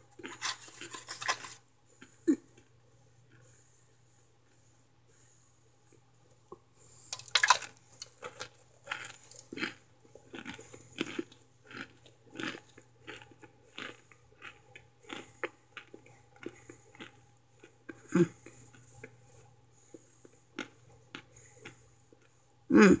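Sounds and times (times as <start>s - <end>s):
crisp crunching between teeth: 0.1s - 1.6s, 7.0s - 19.2s.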